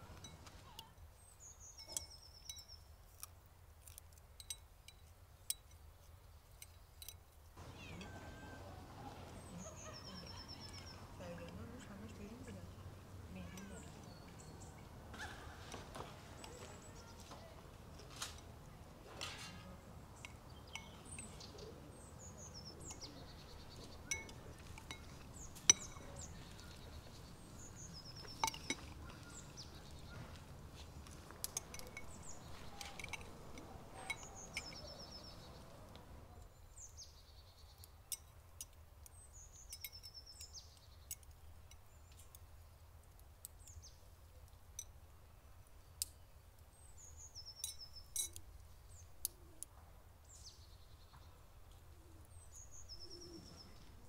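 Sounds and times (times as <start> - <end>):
low background hum: 0.0 - 54.0
small birds chirping: 0.0 - 54.0
spoons clinking on ceramic bowls: 1.8 - 2.8, 20.2 - 21.4, 24.1 - 26.9, 28.2 - 29.0, 31.4 - 35.4, 47.6 - 48.4.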